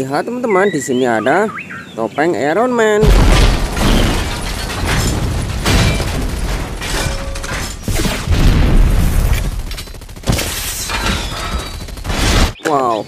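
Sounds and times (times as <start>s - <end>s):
heavy low rumble: 3.0s - 10.2s
explosions and booms: 3.0s - 12.6s
sharp metallic impacts: 3.0s - 12.6s.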